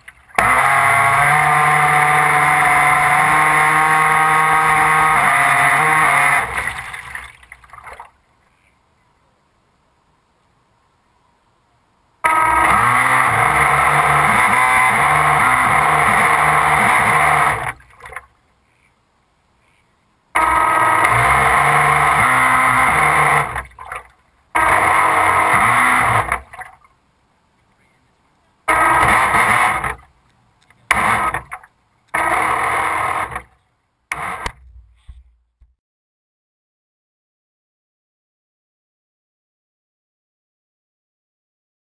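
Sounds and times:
boat motor running in bursts: 0:00.3 - 0:07.0, 0:12.2 - 0:17.9, 0:20.4 - 0:24.0, 0:24.6 - 0:26.6, 0:28.7 - 0:30.1, 0:30.9 - 0:35.2.

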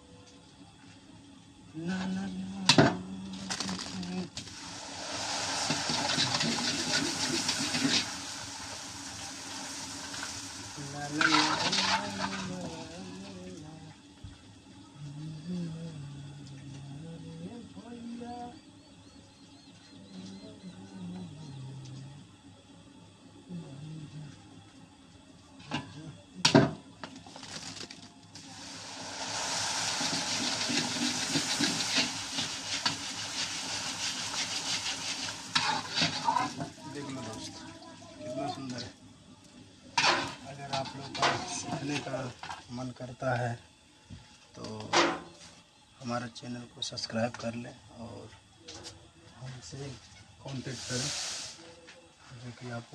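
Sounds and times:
food deep-frying in hot oil: 0:02.7 - 0:14.8, 0:26.4 - 0:43.7, 0:49.6 - 0:51.7
ladle stirring in oil: 0:04.4 - 0:12.9, 0:28.4 - 0:37.7.

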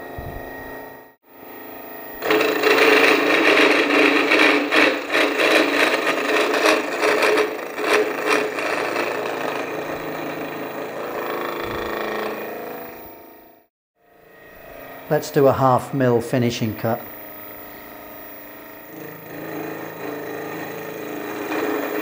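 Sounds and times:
end mill cutting steel: 0:02.1 - 0:13.7, 0:17.2 - 0:22.0.

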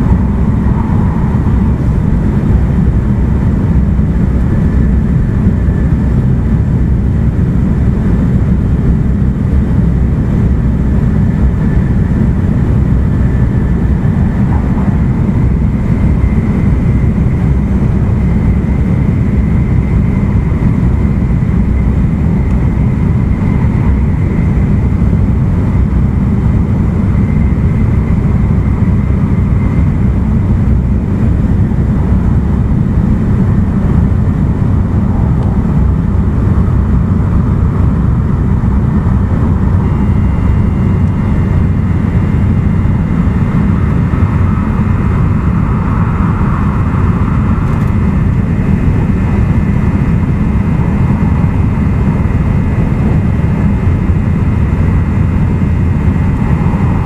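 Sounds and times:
faint high whine: 0:00.0 - 0:57.0
train wheels rumbling on rails: 0:00.0 - 0:57.0.

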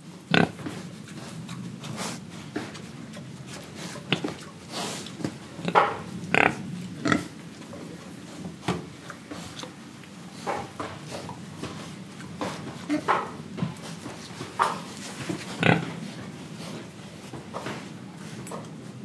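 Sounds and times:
young pigs grunting and oinking: 0:00.2 - 0:00.8, 0:03.6 - 0:11.5, 0:12.3 - 0:13.6, 0:14.5 - 0:17.0.

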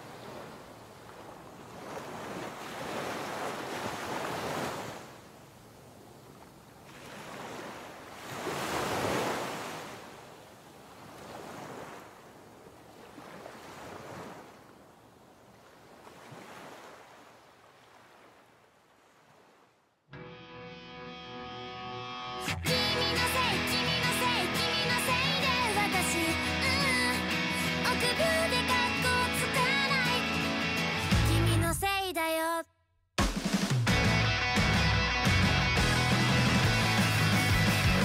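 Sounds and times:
waves washing onto shore: 0:00.0 - 0:19.7
wind: 0:00.0 - 0:20.1.

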